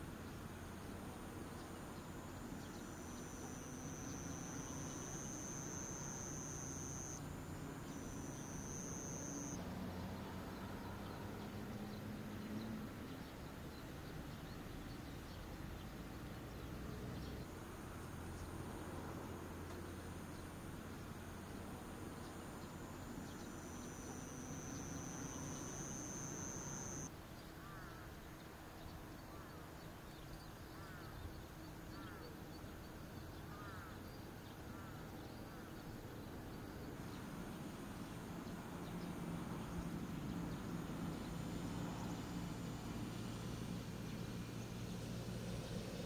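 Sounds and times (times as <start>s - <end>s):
insects buzzing: 0.6s - 9.6s, 20.3s - 27.1s.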